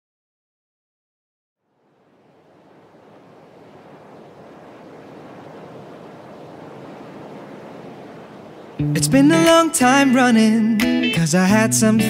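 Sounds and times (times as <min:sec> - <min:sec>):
wind-like rushing noise: 0:01.8 - 0:10.1.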